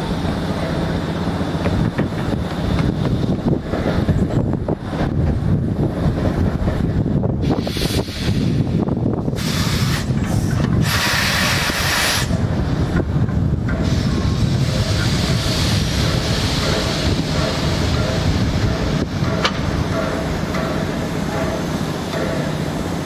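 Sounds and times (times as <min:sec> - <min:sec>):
locomotive rumbling on rails: 0:00.0 - 0:23.0
steam hissing from locomotive: 0:07.4 - 0:12.8, 0:13.7 - 0:23.0.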